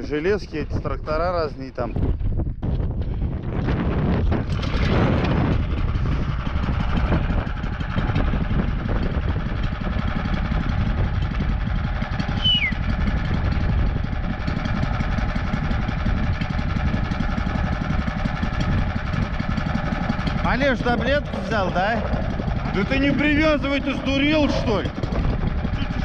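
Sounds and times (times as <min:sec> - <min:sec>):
small engine idling: 0:03.2 - 0:26.0
short falling squeak: 0:12.4 - 0:12.7.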